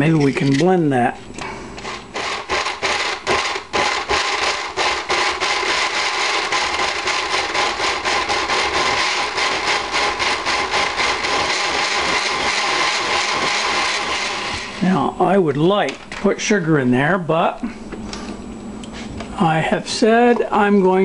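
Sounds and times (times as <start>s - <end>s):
blender grinding: 1.8s - 15.1s.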